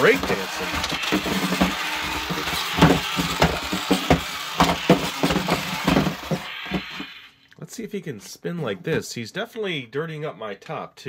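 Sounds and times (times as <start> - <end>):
small electric motor whirring: 0.0 - 7.4.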